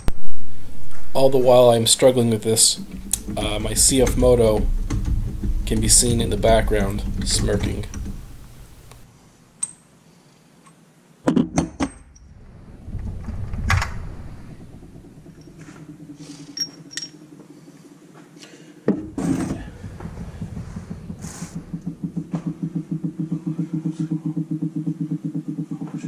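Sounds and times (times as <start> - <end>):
low pulsing hum: 0.0 - 9.1, 12.2 - 17.7, 19.0 - 26.0
metal tools knocking on metal case: 2.8 - 8.9.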